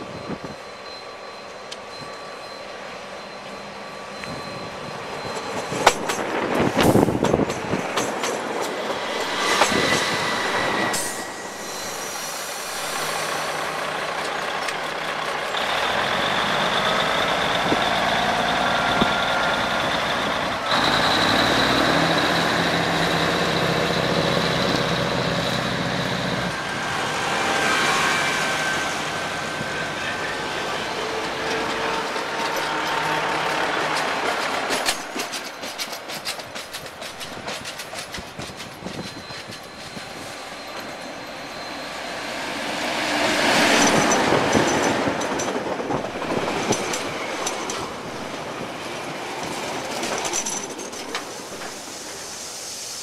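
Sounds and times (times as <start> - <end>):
diesel train engines running: 0.0 - 53.0
train wheel clicks: 5.2 - 11.5, 13.7 - 25.4, 31.2 - 41.0, 43.4 - 52.1.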